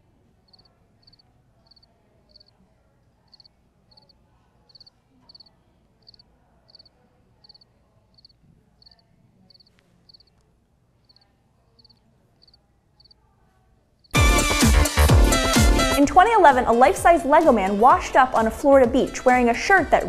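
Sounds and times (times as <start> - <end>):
cricket chirping: 0.5 - 2.5, 3.3 - 4.1, 4.7 - 5.5, 6.1 - 7.6, 8.2 - 10.3, 11.8 - 13.2.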